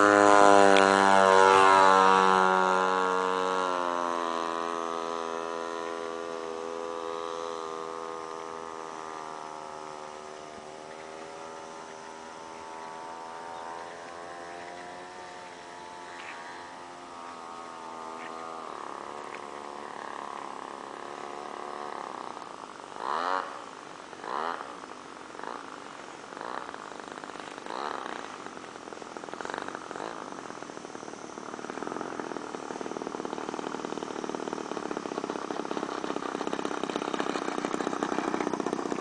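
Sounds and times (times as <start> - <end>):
model plane engine droning: 0.0 - 39.0.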